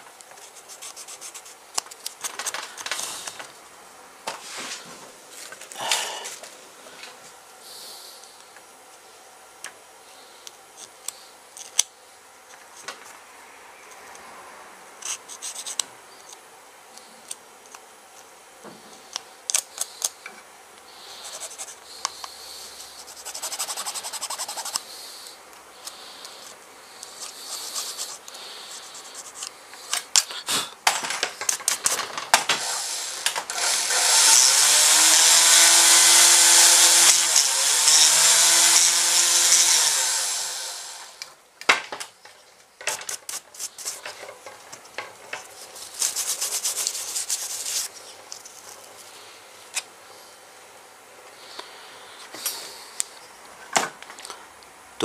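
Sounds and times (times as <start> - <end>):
hand tool scraping and clicking: 10.4 - 11.9, 19.1 - 20.3, 25.8 - 30.4, 36.2 - 39.7
rotary tool grinding whine: 21.0 - 30.2, 31.4 - 41.3.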